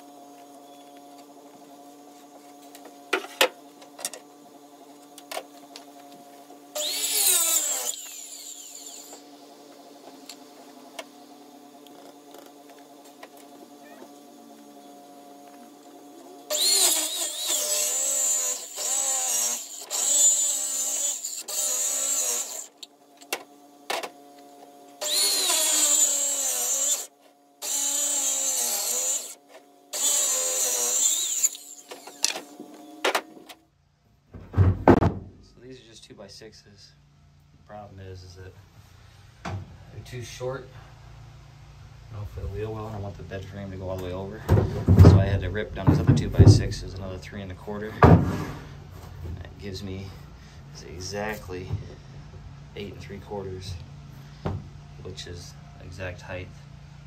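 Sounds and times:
circular saw cutting wood: 0:06.7 - 0:10.8, 0:14.3 - 0:22.9, 0:25.0 - 0:33.0.

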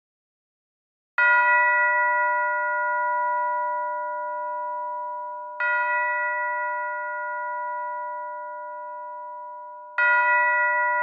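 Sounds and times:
church bell ringing: 0:01.2 - 0:11.0.

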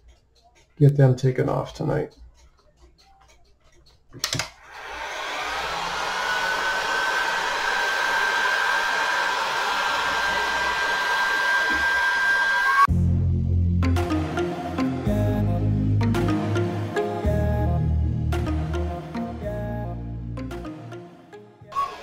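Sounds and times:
heat gun fan blowing: 0:04.6 - 0:12.8.

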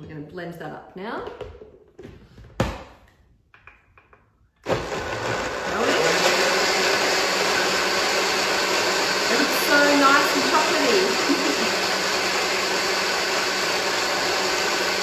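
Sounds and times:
blender motor running: 0:04.6 - 0:15.0.

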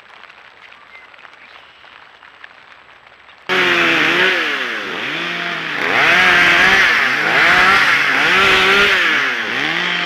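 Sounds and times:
chainsaw engine revving: 0:03.5 - 0:10.0.

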